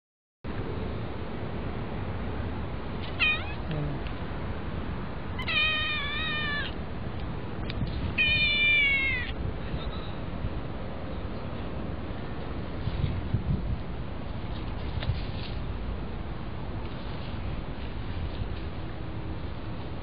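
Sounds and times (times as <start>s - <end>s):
kitten meowing: 3.0s - 3.9s, 5.4s - 6.8s, 8.2s - 9.4s.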